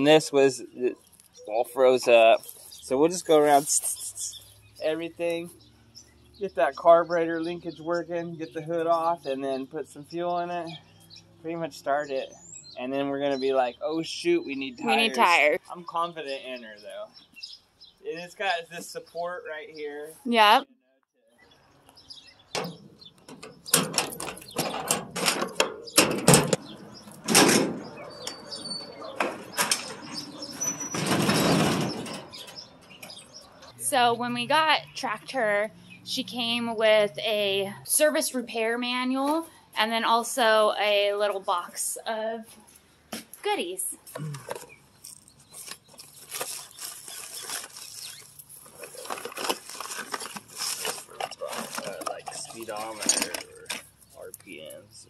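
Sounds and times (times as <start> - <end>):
sheet-metal door rattling and scraping: 22.6 - 33.4
cardboard and paper rustling: 44.4 - 53.8.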